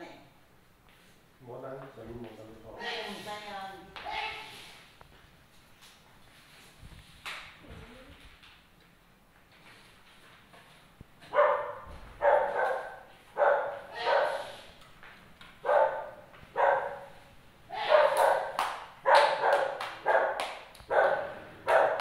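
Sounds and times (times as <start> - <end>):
dog barking: 11.3 - 14.6, 15.6 - 22.0.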